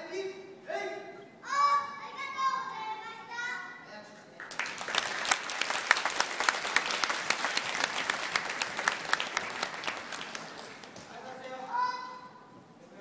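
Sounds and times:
audience applauding: 0:04.4 - 0:11.6.

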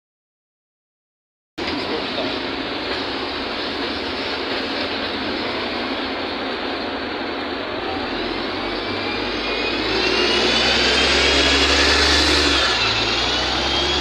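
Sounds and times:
bus diesel engine pulling away: 0:01.6 - 0:14.0
rising whine: 0:07.9 - 0:14.0.

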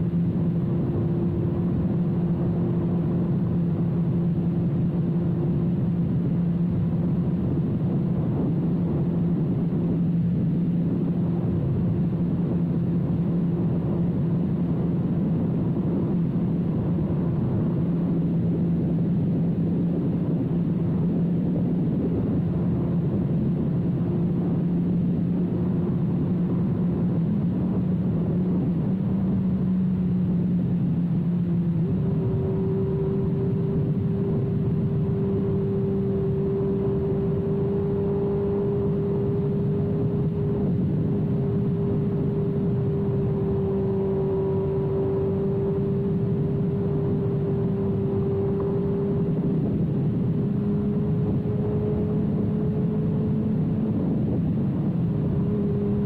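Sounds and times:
motorcycle engine running steadily: 0:00.0 - 0:56.0.

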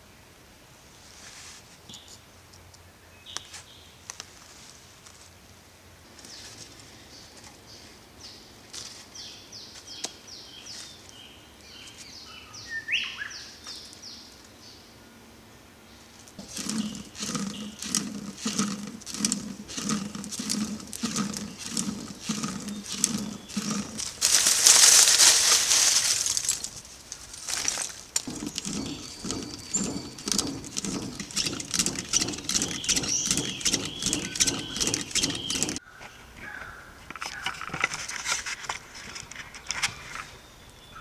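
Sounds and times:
hand-turned blower whooshing: 0:16.4 - 0:26.9, 0:27.6 - 0:35.8
charcoal crackling and popping: 0:16.4 - 0:35.8.

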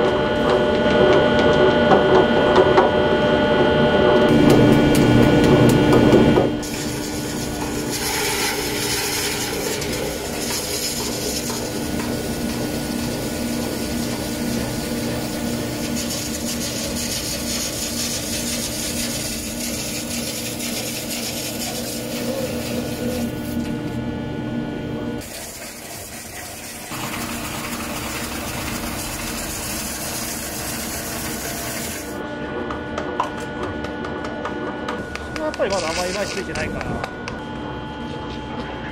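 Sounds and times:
lathe humming: 0:00.0 - 0:32.2
metal bars scraping spinning disc: 0:06.6 - 0:23.4.

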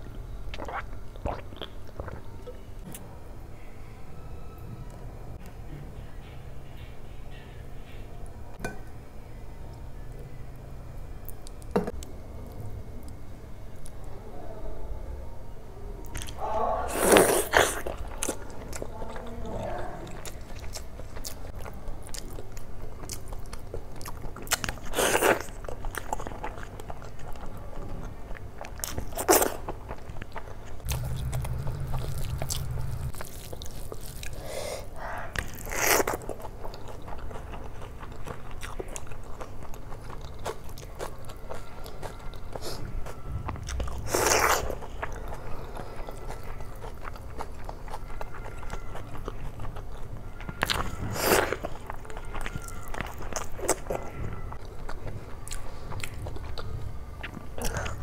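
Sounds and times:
chewing and mouth smacking: 0:35.3 - 0:58.0.

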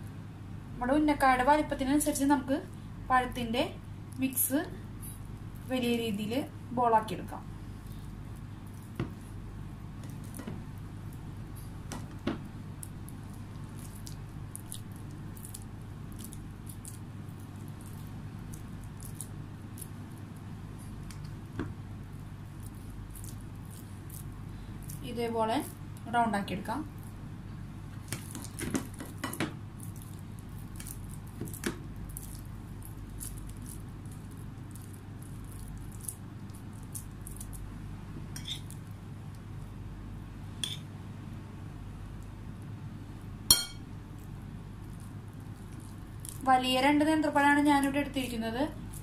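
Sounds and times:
steady low hum: 0:00.0 - 0:49.0
hands squishing dough: 0:07.0 - 0:40.8, 0:43.5 - 0:49.0.

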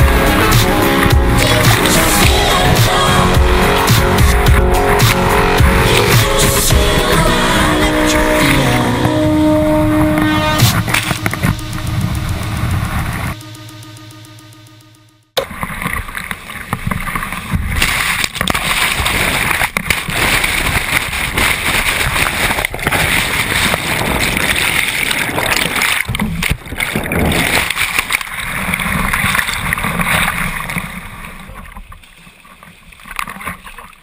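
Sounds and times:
rushing whitewater splashing: 0:00.0 - 0:11.7, 0:15.5 - 0:33.9
underwater gurgling: 0:15.4 - 0:34.0.

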